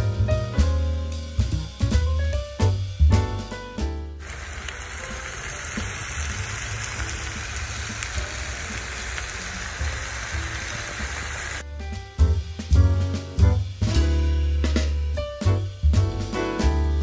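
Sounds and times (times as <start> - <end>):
background music bass: 0.0 - 4.3, 11.6 - 17.0
meat sizzling in a pan: 4.2 - 11.6.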